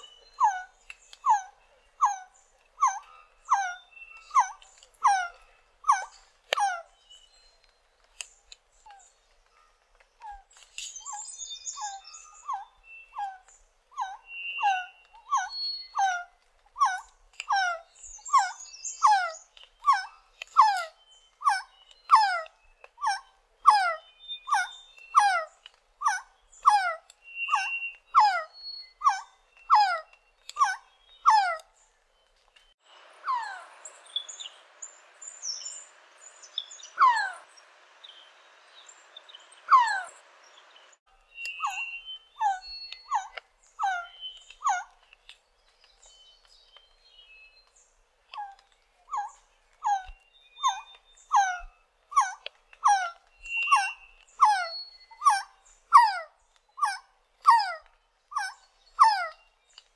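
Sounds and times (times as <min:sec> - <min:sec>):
bird whistling descending notes: 0:27.4 - 0:29.3, 0:41.2 - 0:43.3, 0:52.9 - 0:55.5.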